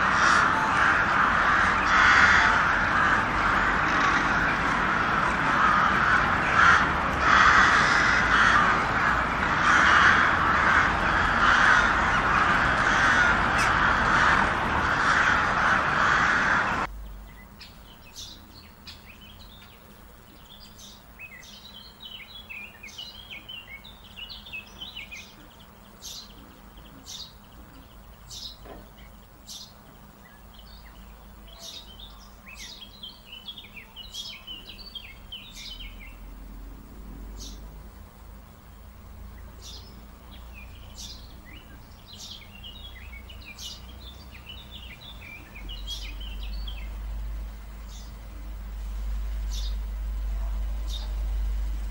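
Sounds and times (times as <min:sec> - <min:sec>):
crows cawing: 0:00.0 - 0:16.9
small songbirds chirping: 0:00.0 - 0:51.9.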